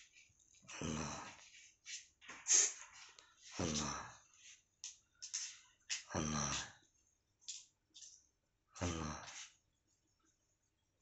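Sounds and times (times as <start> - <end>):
cat hissing: 2.5 - 2.9.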